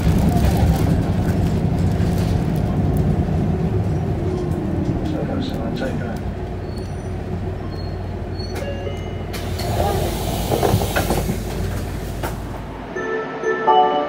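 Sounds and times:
bus engine and road rumble: 0.0s - 13.0s
hiss: 9.4s - 12.5s.

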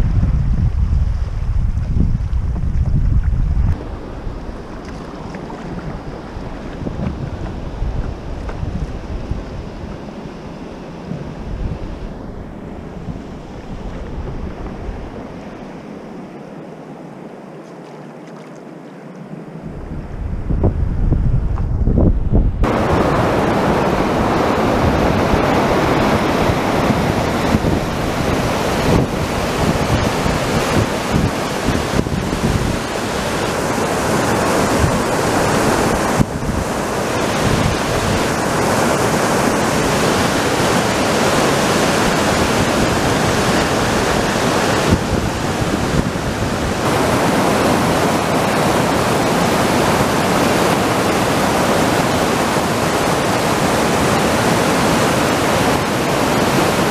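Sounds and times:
river rapids rushing over boulders: 22.6s - 56.9s.

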